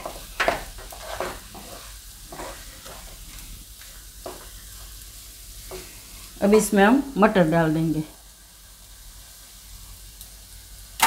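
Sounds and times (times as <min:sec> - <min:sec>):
light sizzle: 0:00.0 - 0:11.0
spatula scraping steel pan: 0:00.4 - 0:02.6.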